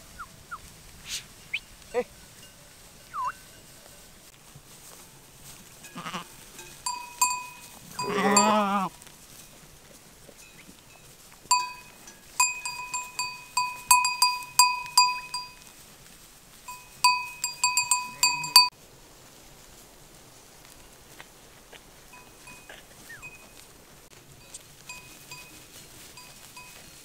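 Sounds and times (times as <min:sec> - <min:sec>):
animal bells clanking: 0:01.3 - 0:09.7, 0:10.3 - 0:15.8, 0:16.6 - 0:18.7, 0:22.1 - 0:27.0
quavering bleat: 0:05.9 - 0:06.3, 0:07.9 - 0:08.9.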